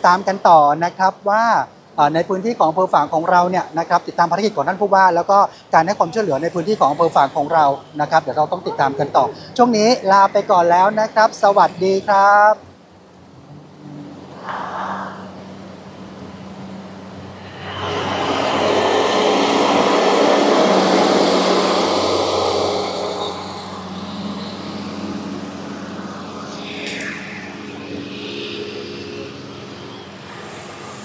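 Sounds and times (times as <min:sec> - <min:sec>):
low engine hum: 0:12.7 - 0:29.5
vehicle passing close by: 0:13.4 - 0:31.0
sharp click: 0:26.8 - 0:27.2.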